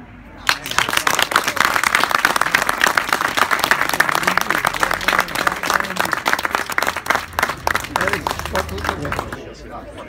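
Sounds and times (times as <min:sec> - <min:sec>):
faint man's voice: 0:00.0 - 0:06.6
crowd applauding: 0:00.4 - 0:09.5.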